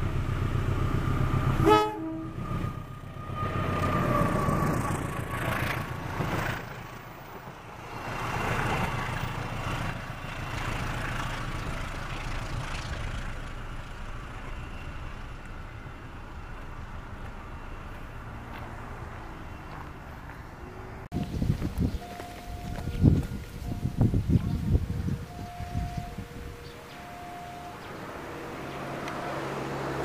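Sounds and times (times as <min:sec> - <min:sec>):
diesel engine rumbling: 0:00.0 - 0:30.0
train horn: 0:01.6 - 0:03.6
train wheels on rails: 0:02.4 - 0:30.0.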